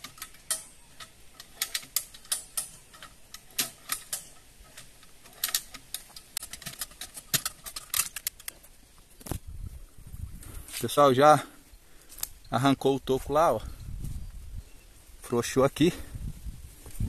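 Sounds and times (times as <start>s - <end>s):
lever winch ratchet clicks: 0.0s - 8.6s.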